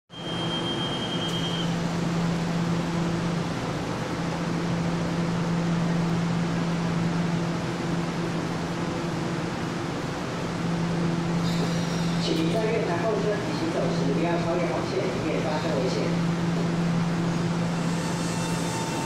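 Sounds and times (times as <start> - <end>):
door warning beep: 0.1 - 1.8
electric train humming: 0.1 - 19.0.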